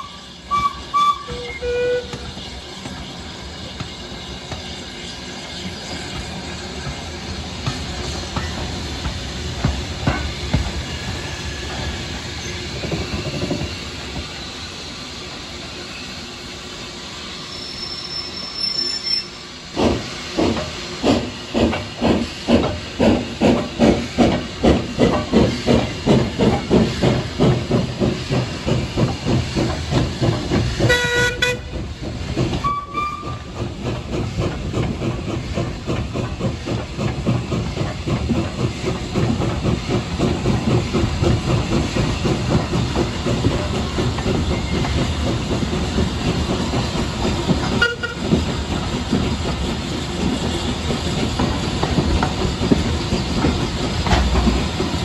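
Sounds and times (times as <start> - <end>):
steam whistle blast: 0.0 - 2.3, 30.9 - 31.7, 32.6 - 33.5
steam locomotive hissing: 0.0 - 55.0.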